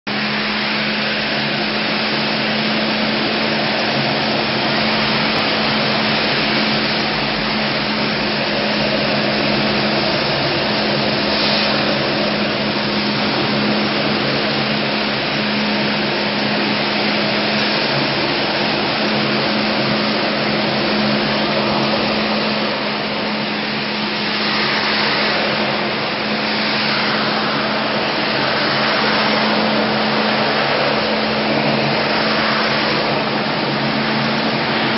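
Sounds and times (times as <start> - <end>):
floor scrubber vacuum whir: 0.1 - 34.9
low hum: 0.1 - 34.9.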